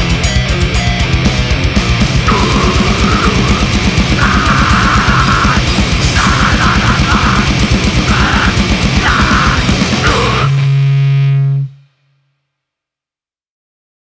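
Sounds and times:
grindcore band playing: 0:00.0 - 0:11.8
screamed vocals: 0:02.3 - 0:10.6.

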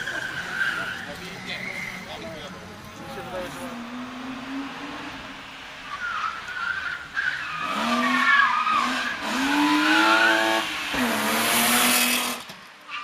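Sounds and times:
tyres squealing: 0:00.0 - 0:02.5
car engine revving hard: 0:07.6 - 0:12.4.

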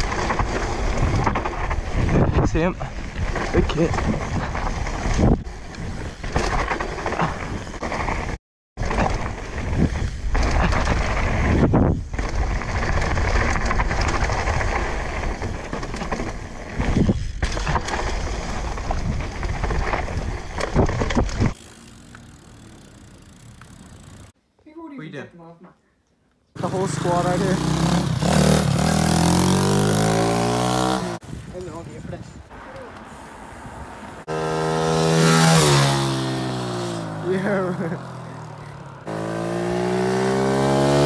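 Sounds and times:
bike tyre and frame noise: 0:00.0 - 0:24.4, 0:26.6 - 0:41.0
wind on microphone: 0:00.8 - 0:06.3, 0:09.2 - 0:15.2.

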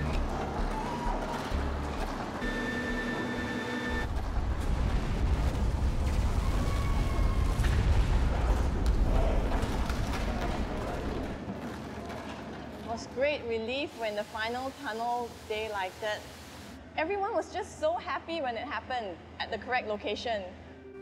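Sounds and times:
deep rumble: 0:04.0 - 0:11.4
rock and debris crashing: 0:04.1 - 0:11.4.

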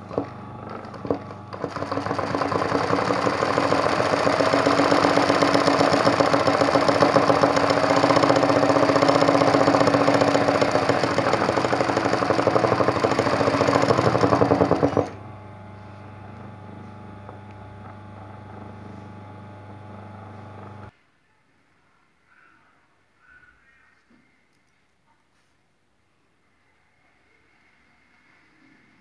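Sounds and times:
sewing machine running fast: 0:00.0 - 0:20.9.

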